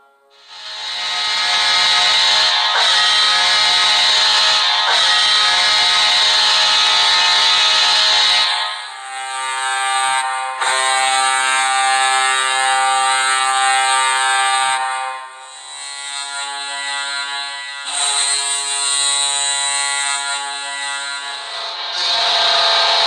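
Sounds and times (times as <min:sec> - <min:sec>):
goal horn blowing: 0:01.6 - 0:08.8.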